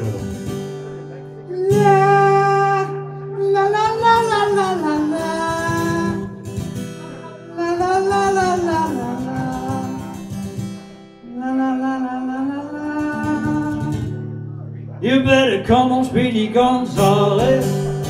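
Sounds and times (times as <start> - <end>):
strummed acoustic guitar: 0.0 - 18.0
man singing wordless cry: 1.5 - 6.3, 7.5 - 10.3, 11.2 - 14.0, 15.0 - 18.0.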